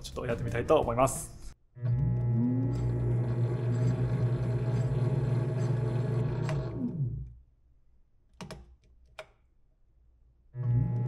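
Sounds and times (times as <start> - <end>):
lathe motor humming and winding down: 1.9 - 7.2.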